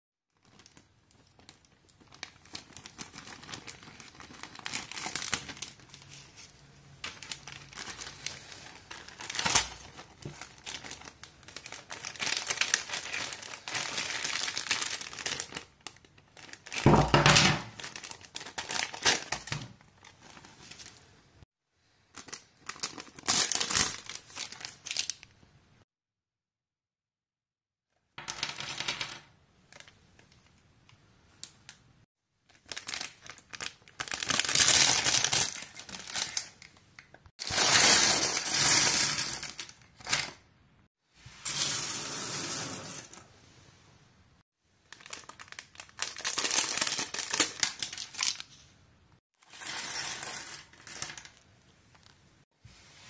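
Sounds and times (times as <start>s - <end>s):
plastic bag crinkling and tearing: 0.4s - 6.4s, 7.0s - 21.0s, 22.1s - 25.3s, 32.5s - 36.8s, 44.8s - 48.6s
small bags rustling: 0.4s - 21.0s, 32.5s - 36.6s.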